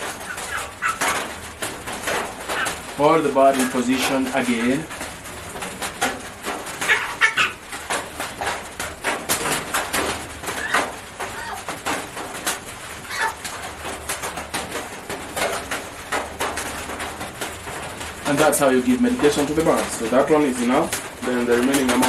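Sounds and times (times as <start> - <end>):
chicken short calls: 0.1 - 1.3, 6.8 - 7.6, 13.1 - 13.4.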